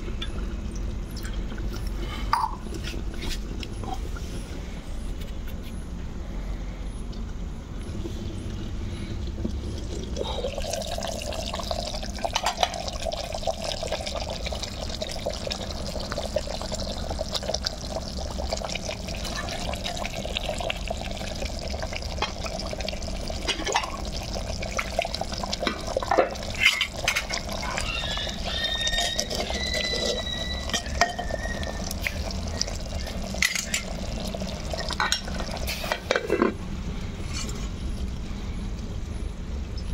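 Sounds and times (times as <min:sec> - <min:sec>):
curry bubbling in a pot: 0:08.7 - 0:36.2
whistle-like tone: 0:28.5 - 0:33.2.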